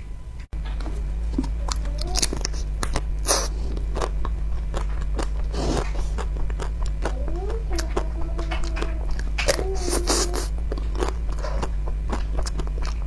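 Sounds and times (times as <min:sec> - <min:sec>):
steady low hum: 0:00.0 - 0:13.0
chewing: 0:00.6 - 0:13.0
crunching bites into ice cream: 0:01.4 - 0:07.2.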